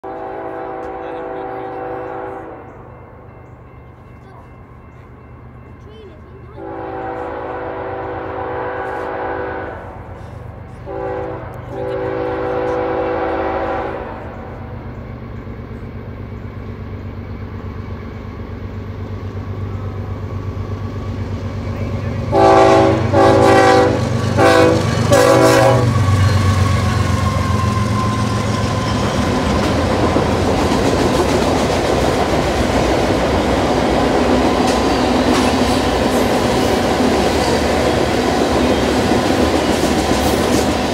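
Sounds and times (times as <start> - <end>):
locomotive horn blasts: 0.0 - 2.7, 6.6 - 10.0, 10.8 - 14.6, 22.3 - 29.4
freight cars rumbling: 9.8 - 40.9.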